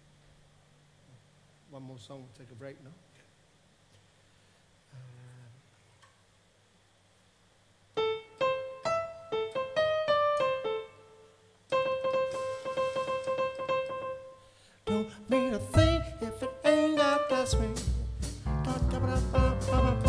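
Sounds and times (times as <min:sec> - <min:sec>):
piano notes and chords: 0:08.0 - 0:20.0.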